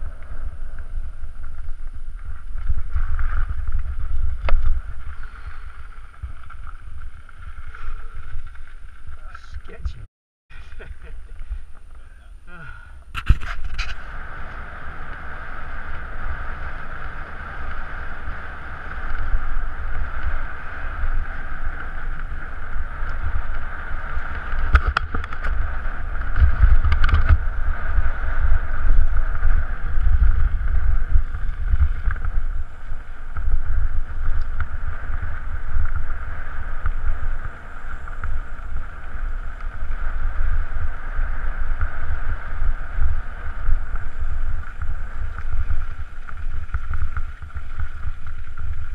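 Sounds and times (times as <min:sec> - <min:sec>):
wind buffeting microphone: 0:00.0 - 0:48.9
tyres rolling on gravel: 0:41.6 - 0:48.9.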